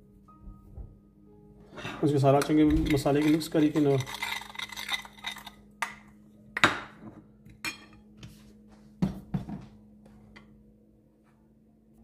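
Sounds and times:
spoon clinking in ceramic bowl: 2.8 - 6.0.

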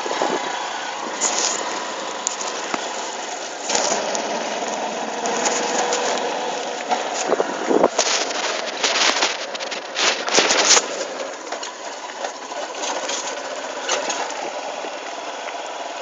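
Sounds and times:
cloth rubbing over microphone: 5.2 - 11.1.

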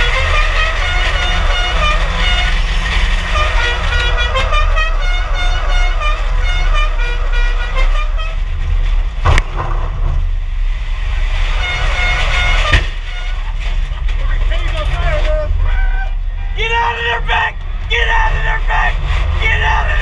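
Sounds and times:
car horns honking: 0.0 - 8.8, 11.4 - 19.9
steady low rumble: 0.0 - 20.0
sharp knock: 9.2 - 10.3, 12.6 - 13.1.

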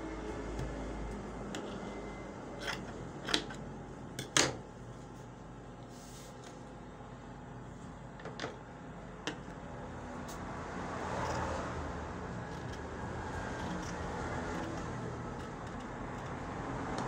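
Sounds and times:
scissors cutting through fabric: 12.4 - 17.0.

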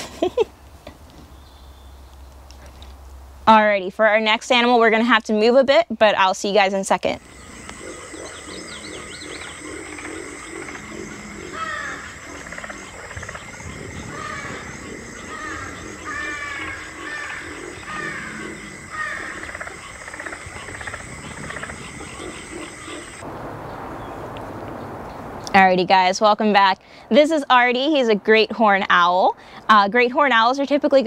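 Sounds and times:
low pulsing background: 7.1 - 23.2.

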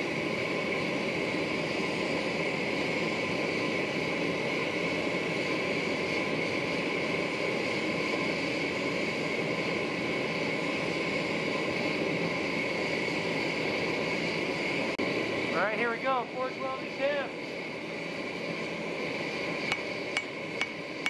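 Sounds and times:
gas burner rushing hiss: 0.0 - 21.0.

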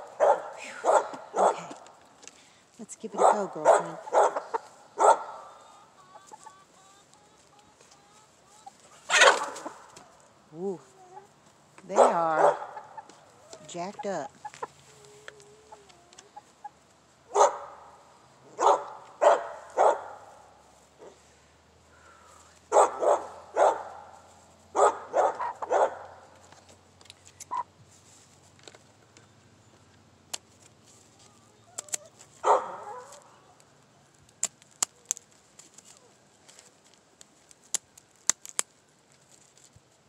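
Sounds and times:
chickens squawking: 3.1 - 7.6, 8.2 - 10.0, 10.9 - 16.9, 24.8 - 25.9, 27.4 - 27.8.

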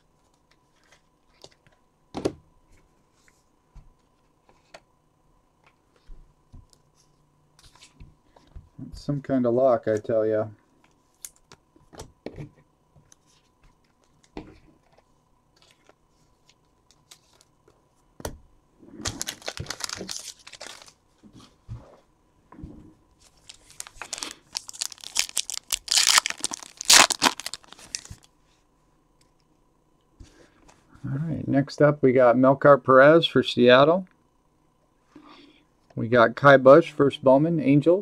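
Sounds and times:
foil wrapper tearing and crinkling: 19.0 - 21.0, 23.3 - 28.3.

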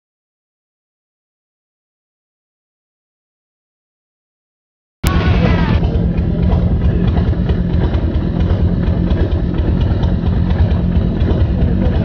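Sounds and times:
motorcycle engine idling: 5.0 - 12.0.

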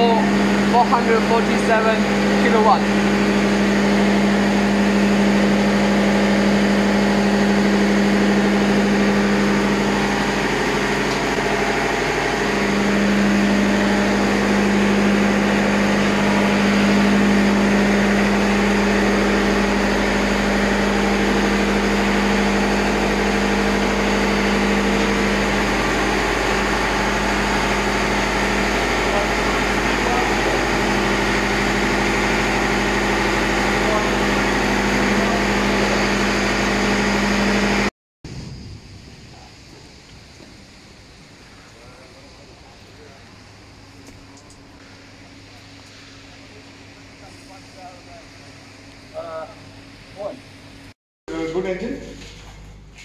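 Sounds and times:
diesel engine humming: 0.0 - 37.9
machinery drone: 0.0 - 53.0.

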